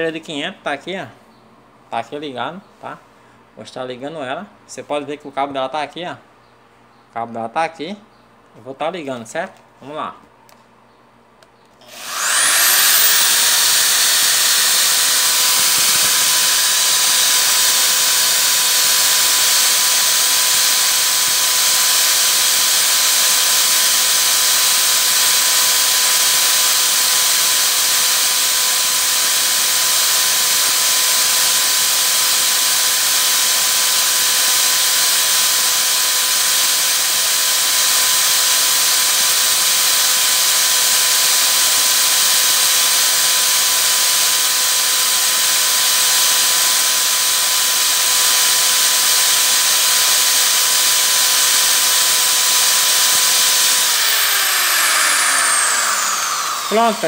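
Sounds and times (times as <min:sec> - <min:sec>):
electric drill whining: 0:11.8 - 0:57.0.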